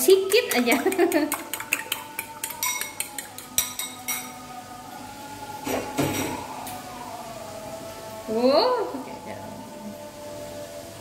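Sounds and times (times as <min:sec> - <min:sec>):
fork beating eggs in bowl: 0:00.3 - 0:04.3.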